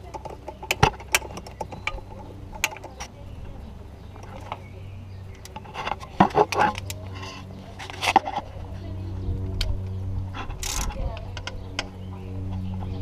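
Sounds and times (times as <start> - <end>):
steady low hum: 0.0 - 13.0
ratchet wrench clicking: 10.6 - 11.9.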